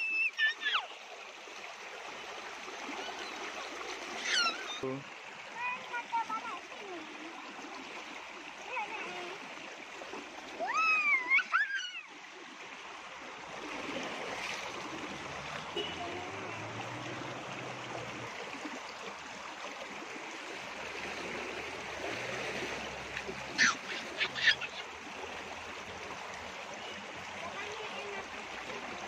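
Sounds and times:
child squealing: 0.0 - 0.9, 4.1 - 4.8, 10.6 - 12.1, 23.6 - 24.8
water rushing along a channel: 0.0 - 29.0.

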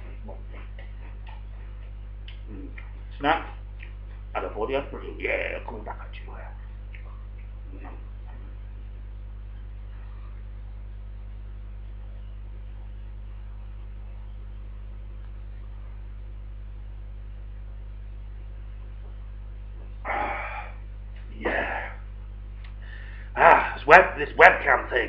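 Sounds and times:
low electrical hum: 0.0 - 25.0
man gasping exhales: 20.1 - 20.8.

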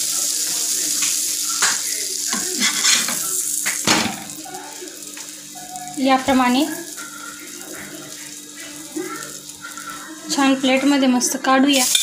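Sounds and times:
bun sizzling in butter: 0.0 - 12.0
steel spatula scraping pan: 2.6 - 3.1.

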